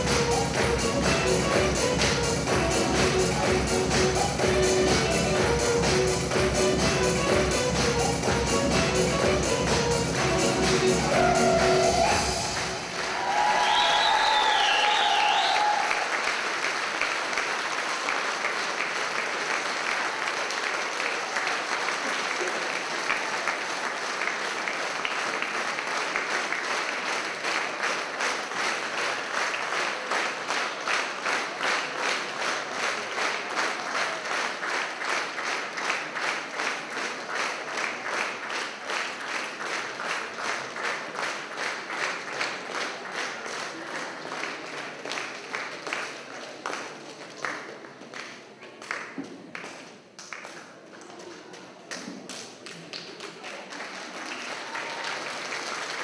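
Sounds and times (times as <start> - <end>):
audience applauding: 9.7 - 50.8, 52.6 - 56.0.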